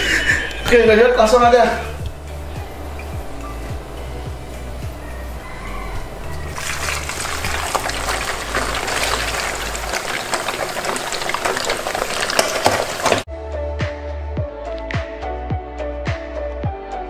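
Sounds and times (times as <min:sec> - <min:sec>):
fish sizzling in hot oil: 0:06.5 - 0:13.3.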